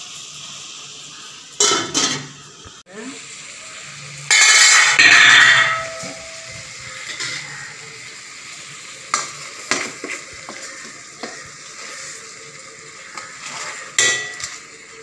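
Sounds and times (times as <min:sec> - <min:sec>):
food sizzling in gravy: 0:00.0 - 0:15.0
spatula scraping a pan: 0:04.3 - 0:07.6, 0:13.0 - 0:14.6.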